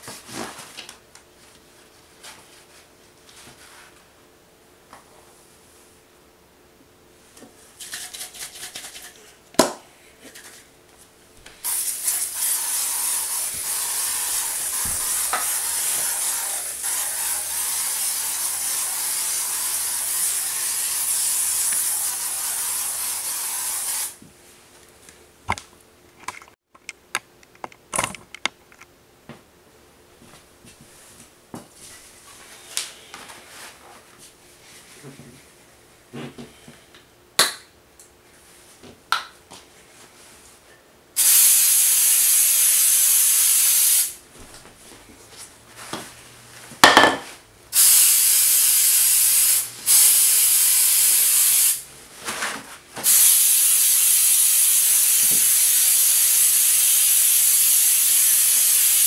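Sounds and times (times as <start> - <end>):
aerosol can spraying hiss: 11.6 - 24.2, 41.2 - 44.2, 47.8 - 51.8, 53.1 - 59.0.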